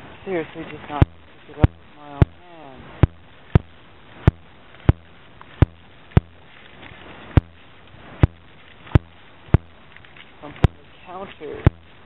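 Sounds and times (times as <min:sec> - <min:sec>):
faint low hum: 0:00.0 - 0:12.0
speech: 0:00.2 - 0:02.9, 0:10.4 - 0:11.7.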